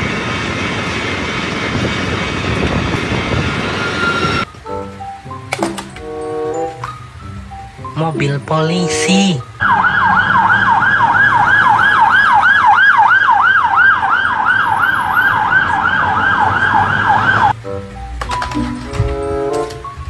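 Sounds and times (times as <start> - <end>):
police siren yelp: 8.2 - 17.6.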